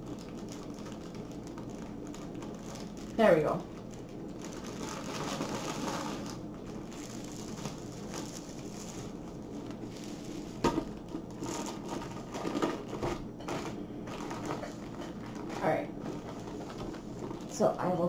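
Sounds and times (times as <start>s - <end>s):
plastic wrapping crinkling: 0.0s - 18.0s.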